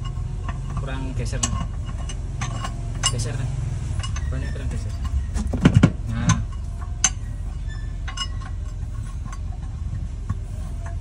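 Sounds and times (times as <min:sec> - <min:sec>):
steady low rumble: 0:00.0 - 0:11.0
knocks and clicks of spare wheel: 0:05.1 - 0:07.2.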